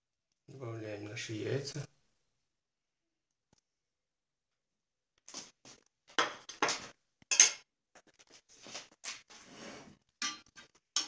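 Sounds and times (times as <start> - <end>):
fork and dishes clinking: 10.2 - 11.0.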